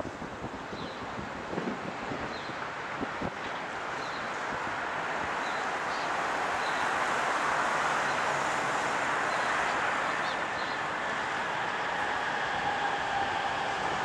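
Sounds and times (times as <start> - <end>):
train rushing rail noise: 0.0 - 14.0.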